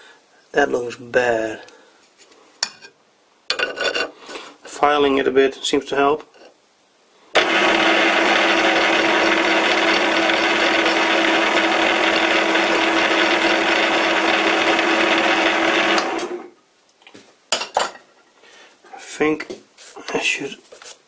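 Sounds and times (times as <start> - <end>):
metal lathe humming and whining: 7.4 - 16.4
lathe spinning down: 7.4 - 16.5.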